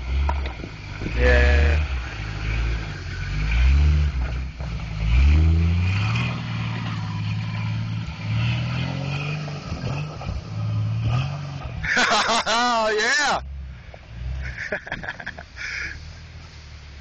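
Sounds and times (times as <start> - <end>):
engine revving under load: 0.0 - 12.1.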